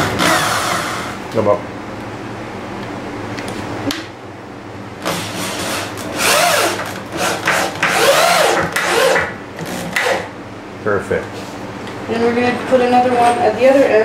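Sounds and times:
power drill driving screw into wood: 0.0s - 1.1s, 5.0s - 10.3s.

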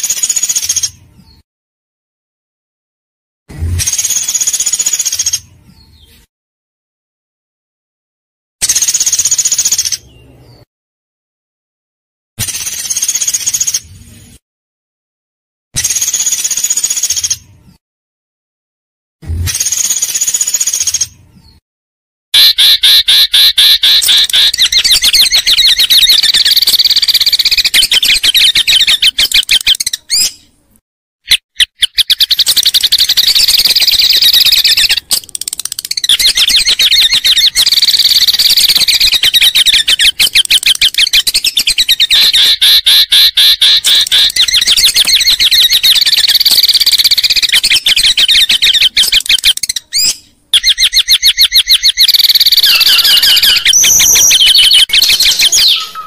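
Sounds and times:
songbird trilling: 22.4s - 30.4s, 31.6s - 56.0s.

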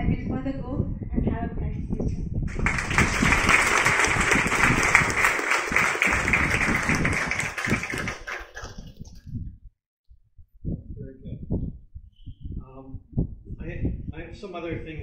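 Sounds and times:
audience applauding: 2.5s - 9.1s.

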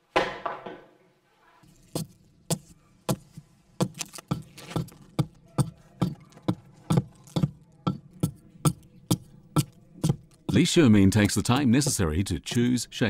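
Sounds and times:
hatchet chopping wood: 3.8s - 12.0s.

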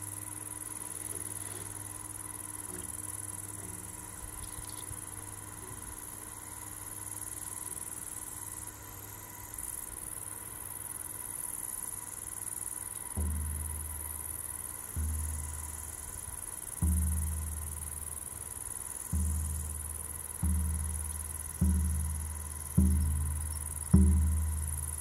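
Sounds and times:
crickets chirring: 0.0s - 25.0s
deep frame drum beat: 13.2s - 25.0s.

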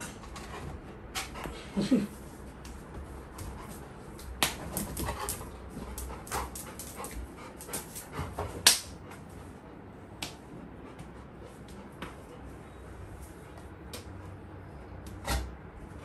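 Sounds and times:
paws clicking and knocking on furniture: 0.0s - 1.8s, 2.4s - 9.3s.

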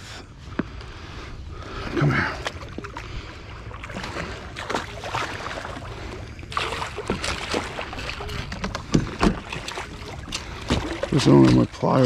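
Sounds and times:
fish splashing in water: 2.4s - 11.7s.

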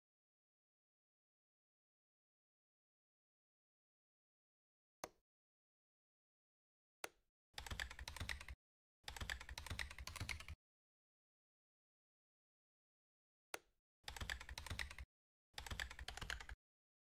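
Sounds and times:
computer keyboard typing: 7.6s - 10.6s, 14.1s - 16.6s.

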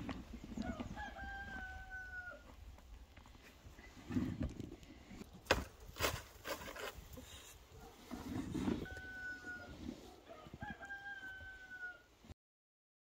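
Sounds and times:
rooster crowing: 0.6s - 2.5s, 8.8s - 12.1s.

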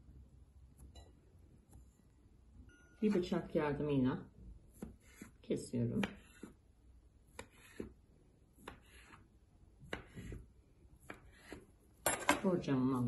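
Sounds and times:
knife slicing cookie dough: 4.6s - 12.0s.

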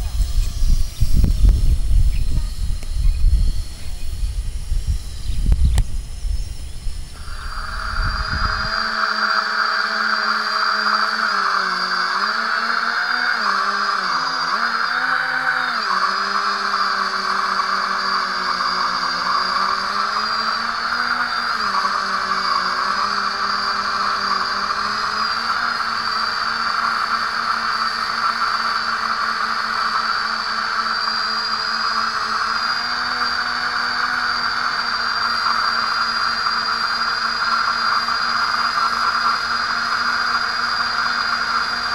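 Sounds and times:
low wind rumble: 0.0s - 13.4s
drone motors whining: 0.0s - 41.9s.

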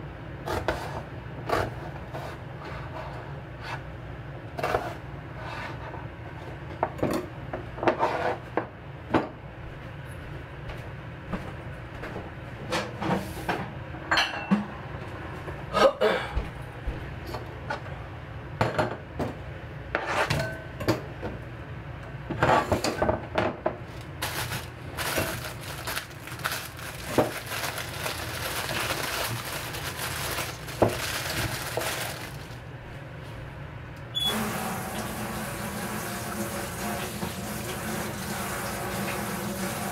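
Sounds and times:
ceramic bowl clinking in metal sink: 14.1s - 14.7s.

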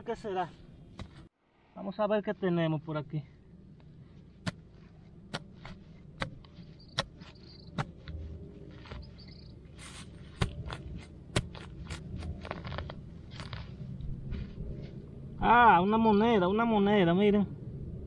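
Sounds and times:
knife scraping soil: 4.0s - 14.2s
knife snapping through turf roots: 9.8s - 13.7s.

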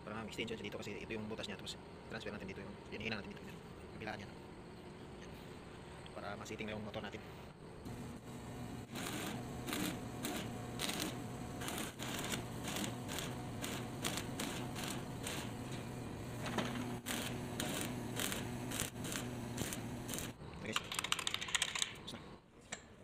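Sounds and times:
arc welding crackling and sizzling: 7.8s - 20.4s.

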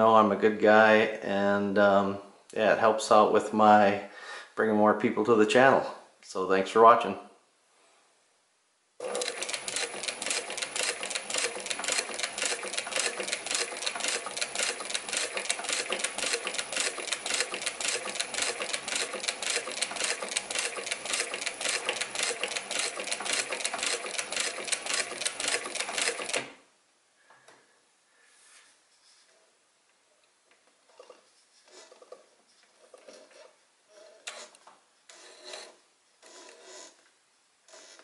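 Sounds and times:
sewing machine stitching: 9.0s - 26.5s, 32.9s - 37.0s.

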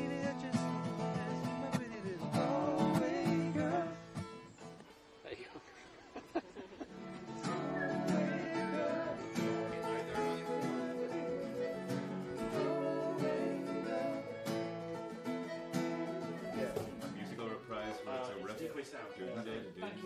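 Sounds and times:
acoustic guitar strumming chords: 0.0s - 4.6s, 7.1s - 17.6s.

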